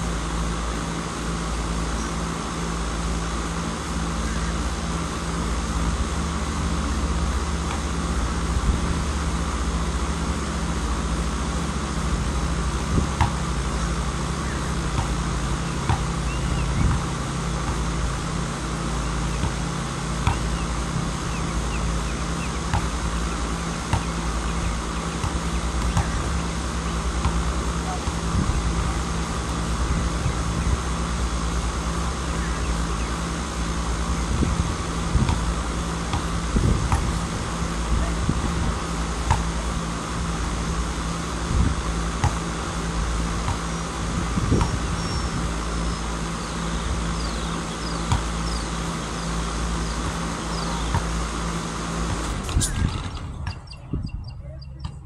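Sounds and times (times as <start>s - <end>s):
low background rumble: 0.0s - 55.0s
basketball bouncing: 12.9s - 14.0s, 14.7s - 18.1s, 19.3s - 20.6s, 22.0s - 31.0s, 35.2s - 35.5s, 36.1s - 37.2s, 39.2s - 39.6s, 42.2s - 42.6s, 43.4s - 43.8s, 44.4s - 44.9s, 48.0s - 48.5s, 50.0s - 51.2s.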